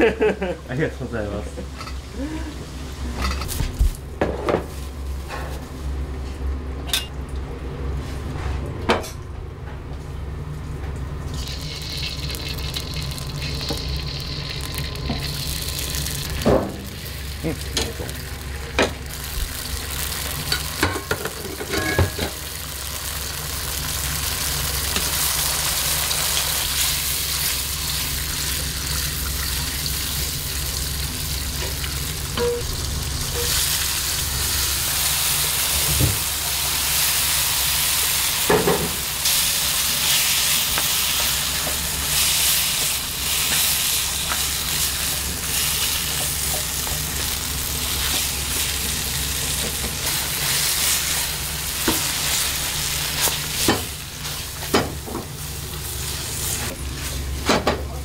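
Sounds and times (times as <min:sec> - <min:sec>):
steady low hum: 0:00.0 - 0:58.0
utensils and pans clinking: 0:03.2 - 0:03.6, 0:17.5 - 0:19.0, 0:20.4 - 0:22.4, 0:32.4 - 0:32.7
food sizzling in hot oil: 0:11.3 - 0:57.4.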